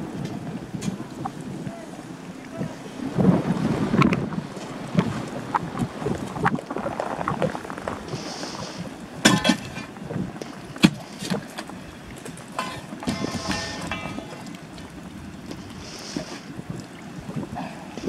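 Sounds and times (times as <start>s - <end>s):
iron bar knocking on rock: 12.6s - 14.5s.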